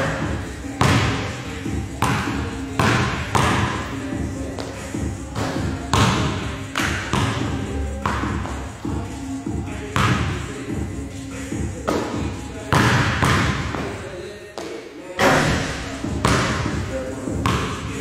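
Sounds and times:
basketball bouncing on gym floor: 0.0s - 3.9s, 5.0s - 9.1s, 10.0s - 10.4s, 11.6s - 13.9s, 15.2s - 17.9s.

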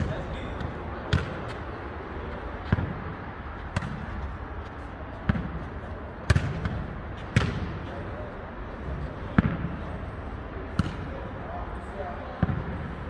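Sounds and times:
ball kicked and bouncing: 0.0s - 1.6s, 2.6s - 8.0s
background noise: 0.0s - 13.0s.

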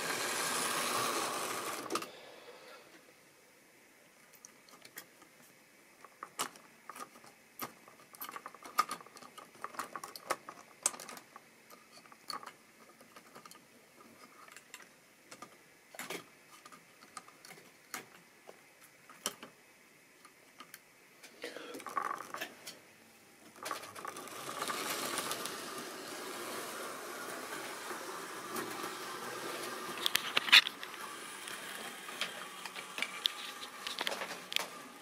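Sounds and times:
model train wheels clicking on rails: 0.0s - 2.1s, 23.6s - 35.0s.

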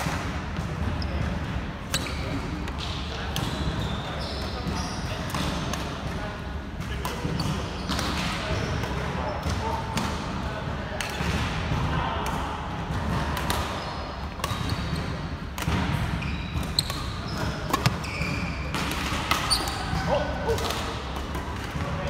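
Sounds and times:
shoe squeaks on wooden floor: 3.5s - 5.2s, 16.2s - 18.7s, 19.4s - 19.9s
racket striking shuttlecock: 14.4s - 19.8s.

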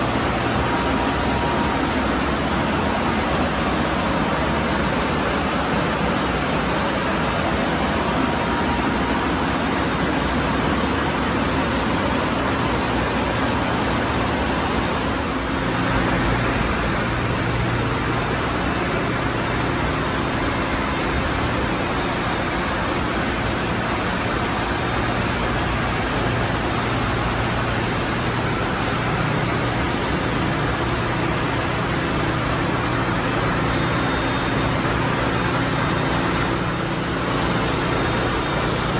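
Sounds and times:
engine room machinery humming: 0.0s - 38.9s.

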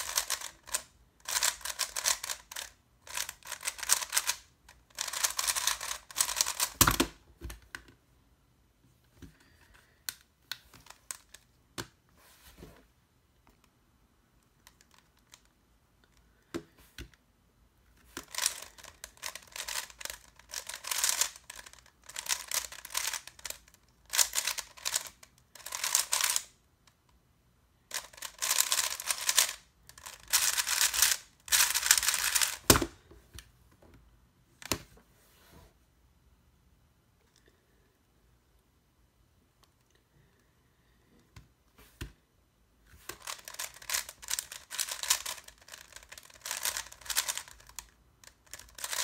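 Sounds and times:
puzzle cube clacking turns: 0.0s - 7.8s, 9.2s - 12.0s, 17.9s - 26.6s, 27.9s - 33.0s, 42.9s - 49.0s
small clicks of cube handling: 0.0s - 8.0s, 9.0s - 12.0s, 14.4s - 17.2s, 17.8s - 27.2s, 27.9s - 34.0s, 39.6s - 40.5s, 42.9s - 49.0s.

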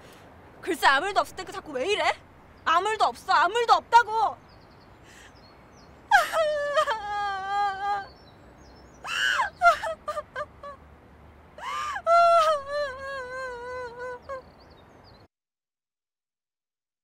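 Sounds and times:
catches of breath: 5.0s - 5.5s
woman sobbing and wailing: 6.1s - 8.1s, 9.0s - 10.8s, 11.6s - 14.4s.

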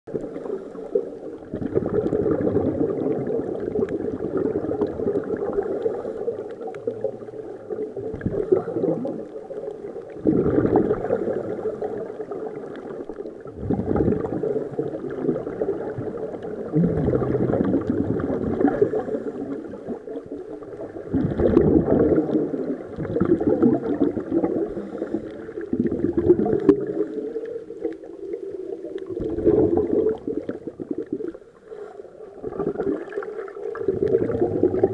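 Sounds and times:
exhaled air bubbling underwater: 0.1s - 34.9s
diver inhaling through regulator: 18.7s - 19.8s, 24.5s - 25.7s, 31.5s - 32.4s.

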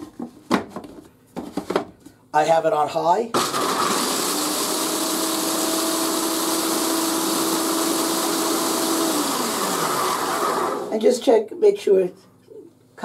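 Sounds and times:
food processor motor whirring: 3.4s - 11.0s.

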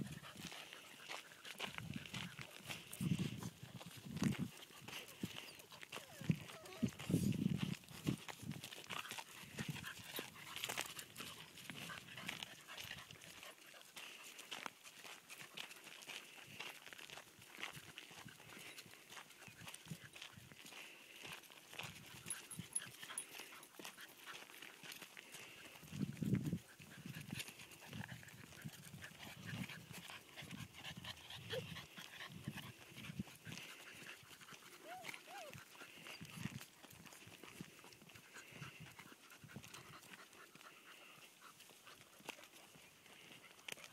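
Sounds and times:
footsteps crunching on gravel: 0.0s - 30.2s
quiet puppy sounds: 0.0s - 43.9s.

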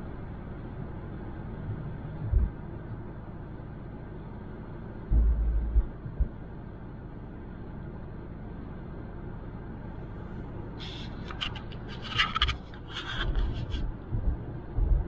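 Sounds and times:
car road noise: 0.0s - 15.0s
low thumps: 2.2s - 2.6s, 5.1s - 6.4s, 14.1s - 15.0s
scratching and rubbing: 10.8s - 13.9s.

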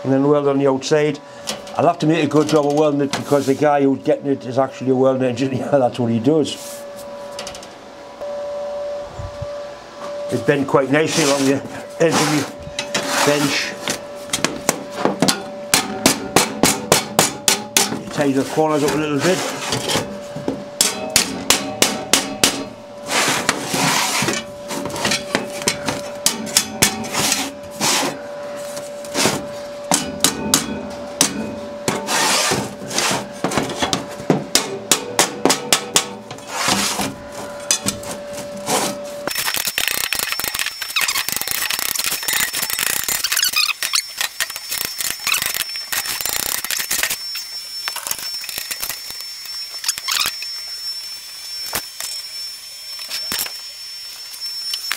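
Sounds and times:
faint high whine: 0.0s - 54.9s
hammer blows on sheet metal: 11.1s - 18.2s, 20.8s - 23.6s, 29.2s - 37.1s.

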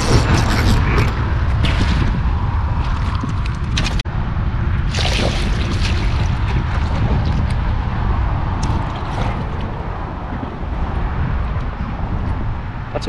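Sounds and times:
fish splashing in water: 0.0s - 4.0s, 4.8s - 7.8s, 8.5s - 10.2s
wind rumble on microphone: 0.0s - 13.0s.

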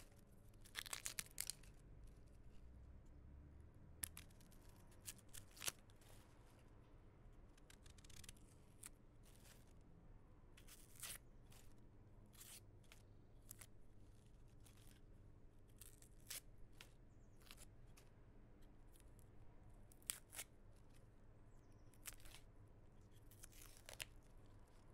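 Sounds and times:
onion skins crackling: 0.0s - 2.4s, 4.0s - 6.6s, 7.4s - 9.8s, 10.6s - 18.1s, 18.8s - 24.9s.

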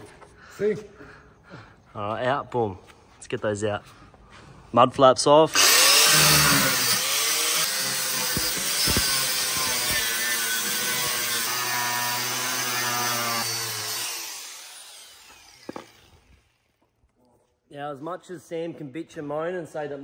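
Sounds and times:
angle grinder cutting steel: 5.5s - 16.6s.

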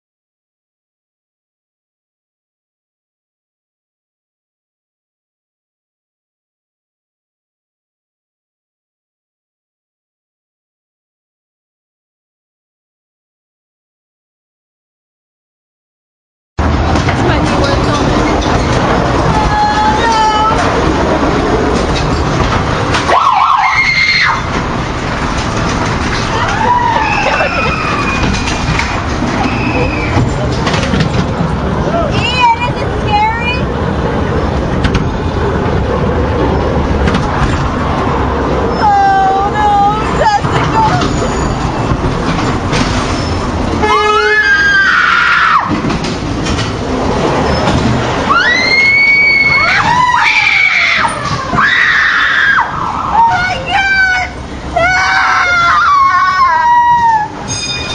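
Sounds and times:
ride car rumbling on rails: 16.6s - 57.9s
riders screaming: 23.1s - 24.5s, 26.3s - 28.5s, 43.8s - 45.7s, 48.2s - 53.4s, 54.8s - 57.4s.

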